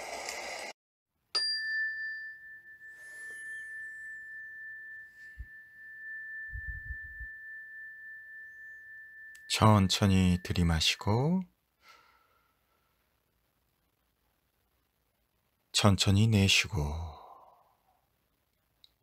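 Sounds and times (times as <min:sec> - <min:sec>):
meditation bell ringing: 0:01.4 - 0:11.4.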